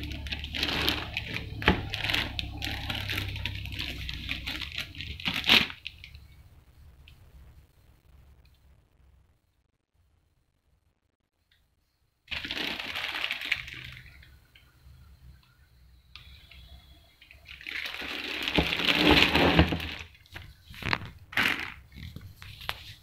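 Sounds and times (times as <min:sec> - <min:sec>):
plastic bags crinkling and rustling: 0:00.0 - 0:06.4, 0:12.3 - 0:14.4, 0:16.2 - 0:23.0.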